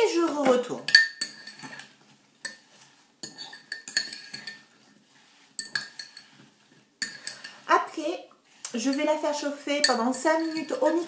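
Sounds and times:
fork clinking against ceramic bowl: 0:03.2 - 0:04.7, 0:05.6 - 0:06.3, 0:09.8 - 0:10.9.

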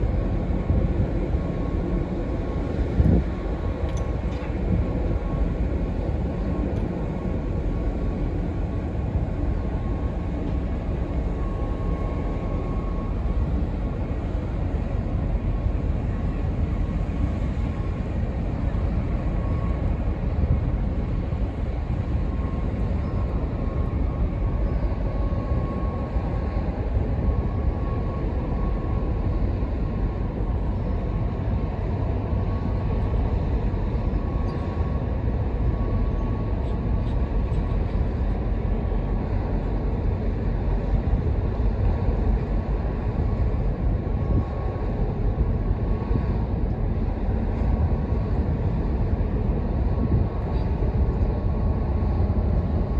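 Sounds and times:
faint machinery whine: 0:00.0 - 0:52.9
ship engine rumble: 0:00.0 - 0:52.9.

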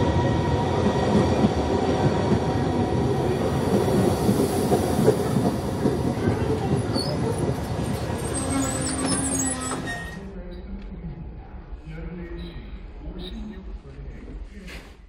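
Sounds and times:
train wheels rumbling on rails: 0:00.0 - 0:10.2.

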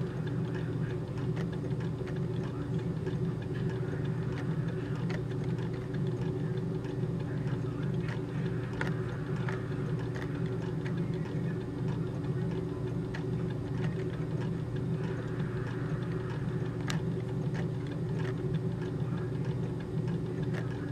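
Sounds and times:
steady low hum: 0:00.0 - 0:20.9.

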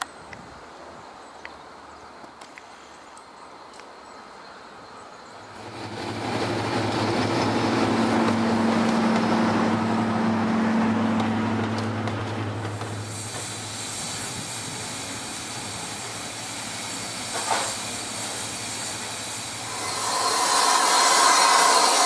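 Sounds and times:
light ticks: 0:01.4 - 0:01.6
diesel locomotive droning past: 0:05.5 - 0:17.4, 0:18.0 - 0:22.0.

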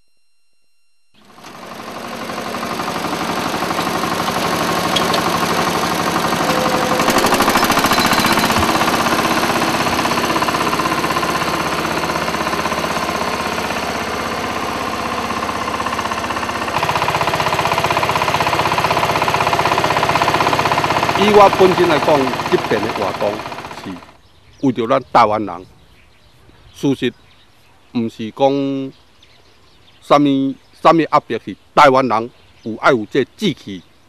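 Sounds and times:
small engine running: 0:00.1 - 0:24.2.

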